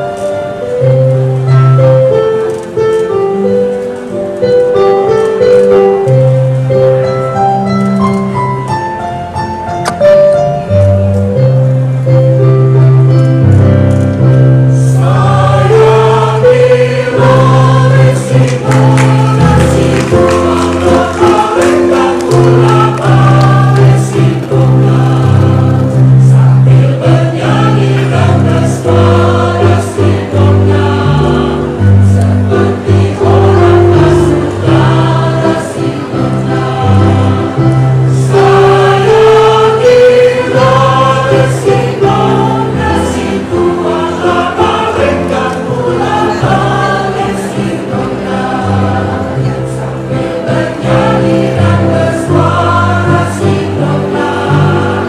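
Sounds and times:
mixed choir singing: 14.6 - 55.0.

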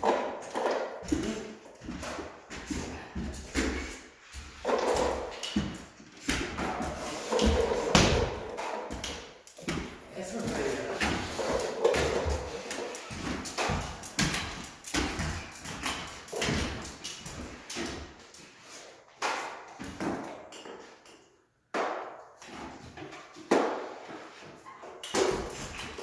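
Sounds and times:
tools and buckets clattering: 0.0 - 18.2
knocks and scrapes of drywall taping: 0.0 - 26.0.

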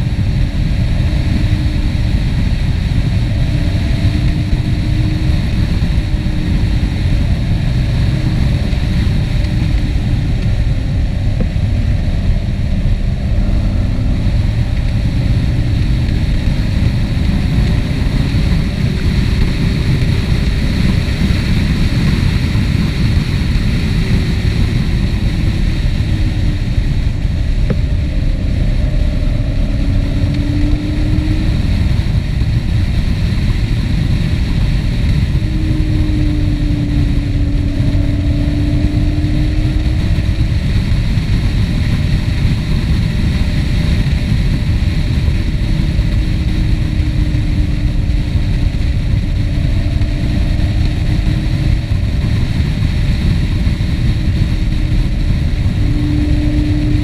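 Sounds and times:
vehicle engine and road rumble: 0.0 - 57.0.

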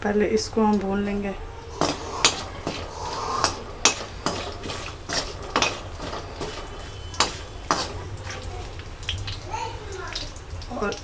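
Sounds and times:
metal spoon scraping pan: 1.6 - 8.5
spices sizzling in oil: 1.6 - 11.0.

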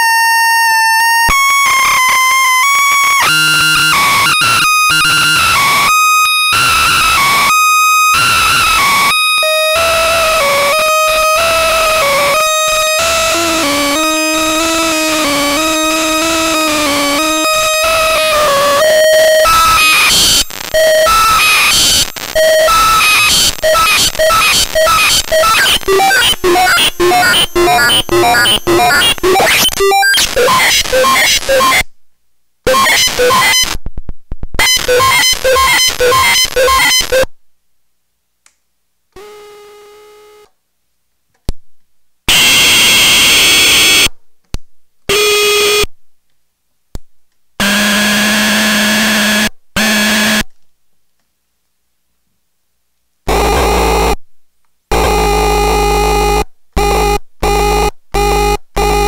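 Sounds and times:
held buzzy tones: 8.2 - 31.8, 32.7 - 33.8, 34.6 - 37.3, 47.6 - 50.5, 53.3 - 54.2, 54.9 - 59.0
buzzy synthesizer sequence: 9.9 - 31.8, 32.7 - 33.8, 34.6 - 37.3, 47.6 - 50.4, 53.3 - 54.2, 54.9 - 59.0
harsh noise bursts: 16.4 - 31.8, 32.7 - 33.8, 34.6 - 37.3.

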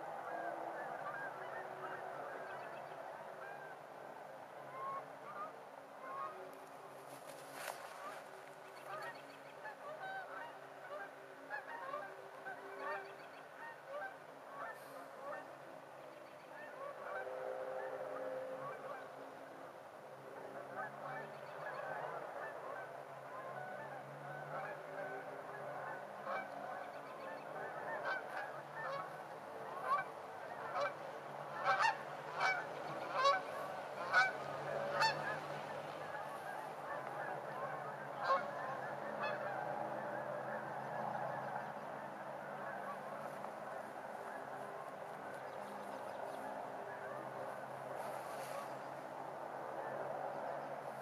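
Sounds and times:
flock of geese honking: 0.0 - 51.0.

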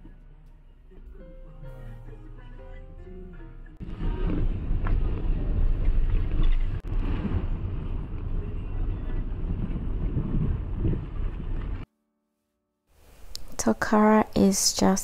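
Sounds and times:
car driving slowly: 0.0 - 11.8
wind buffeting microphone: 3.8 - 11.9.

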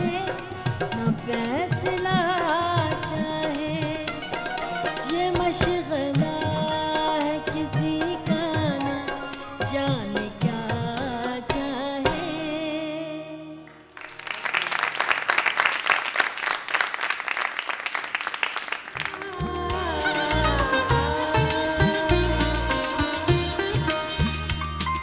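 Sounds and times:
tabla: 0.0 - 13.6, 18.8 - 25.0
woman singing: 0.0 - 13.7, 19.0 - 24.0
audience applauding: 13.9 - 21.3.

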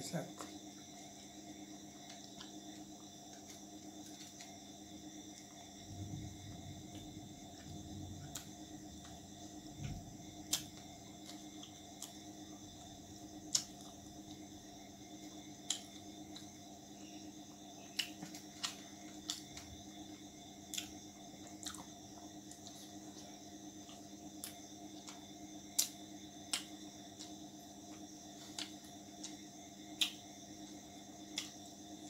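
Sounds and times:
faint background hum: 0.0 - 32.0
wet chewing clicks: 10.3 - 12.3, 13.4 - 14.0, 17.8 - 19.8, 20.6 - 23.0, 23.8 - 27.4, 28.4 - 30.2.

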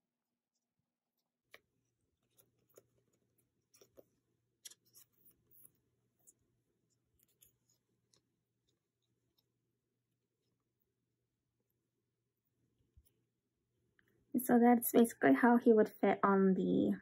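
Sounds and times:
card rustling in plastic sleeve: 0.6 - 9.5.

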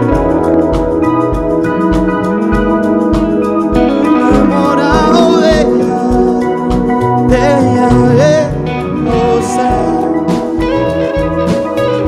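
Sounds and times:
live rock band playing: 0.0 - 12.0
man singing: 4.0 - 11.3.

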